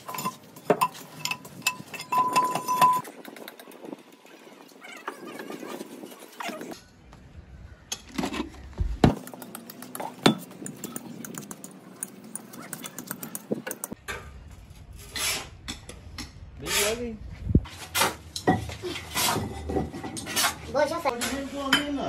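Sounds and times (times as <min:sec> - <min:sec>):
metal castings clinking and knocking: 0:00.0 - 0:03.0.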